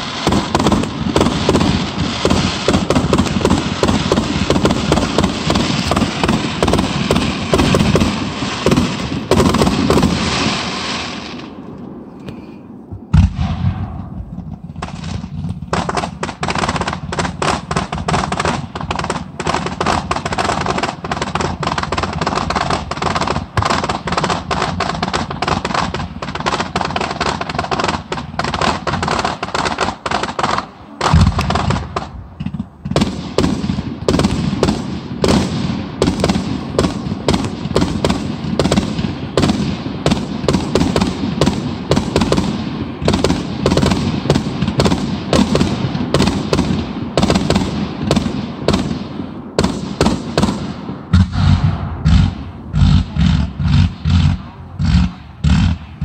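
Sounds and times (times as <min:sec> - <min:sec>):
fireworks bangs and crackles: 0:00.0 - 0:56.0
deep firework boom: 0:12.8 - 0:24.8, 0:31.0 - 0:48.4, 0:49.6 - 0:56.0.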